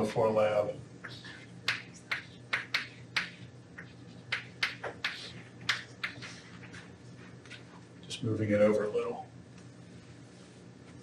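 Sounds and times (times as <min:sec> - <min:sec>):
low steady hum: 0:00.0 - 0:11.0
chalk tapping on chalkboard: 0:01.7 - 0:06.3.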